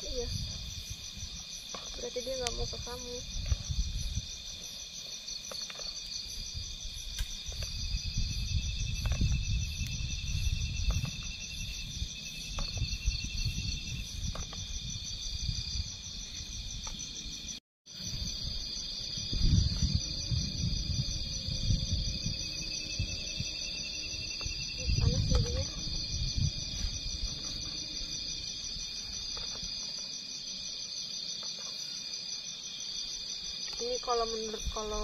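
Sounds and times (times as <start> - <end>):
crickets and insects trilling: 0.0 - 35.0
low rumble: 19.2 - 27.6.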